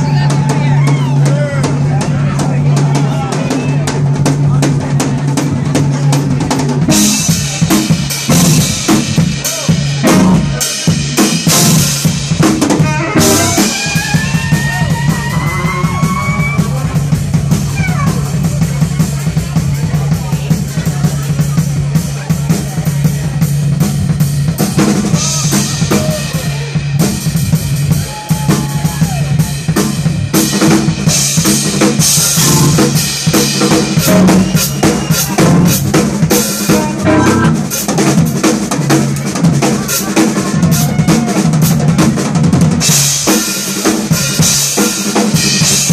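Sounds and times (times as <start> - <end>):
drum kit: 0.0 - 45.9
funk band playing: 0.0 - 45.9
rising sliding instrument line: 12.8 - 16.8, 32.4 - 33.0, 34.1 - 35.7, 36.7 - 37.7.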